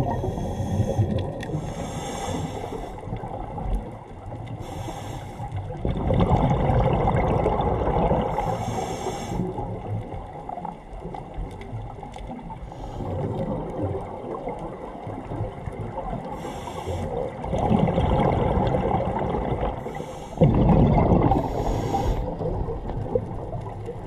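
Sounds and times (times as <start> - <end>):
scuba regulator hissing inhales: 0.0 - 3.2, 4.6 - 5.6, 8.3 - 9.6, 12.7 - 13.3, 16.4 - 17.4, 19.8 - 20.5, 21.3 - 22.5
bubbling exhales: 5.7 - 9.8, 16.3 - 23.6.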